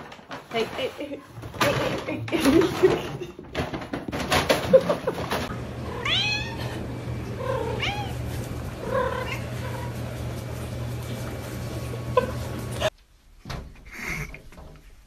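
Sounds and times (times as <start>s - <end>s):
knocking and clattering: 0.0s - 5.5s
cat meowing: 5.9s - 6.7s, 7.4s - 8.2s.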